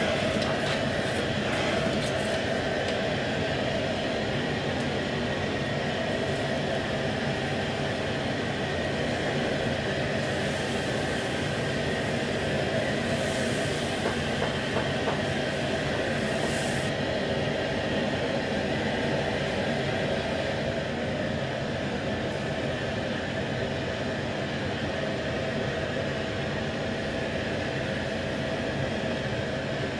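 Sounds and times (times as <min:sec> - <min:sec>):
gas wok burner roaring: 0:00.0 - 0:29.9
food sizzling in a wok: 0:10.2 - 0:14.4, 0:15.5 - 0:16.9.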